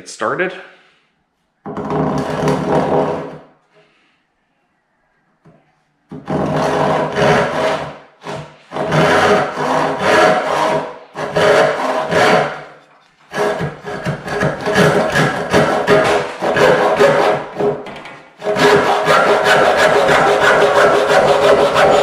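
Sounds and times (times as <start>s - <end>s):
hand saw cutting wood: 6.1s - 17.8s, 18.4s - 22.0s.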